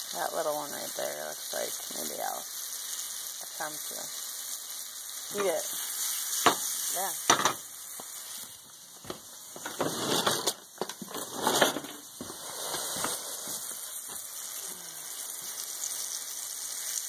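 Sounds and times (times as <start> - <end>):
mushrooms sizzling in a pan: 0.0 - 17.0.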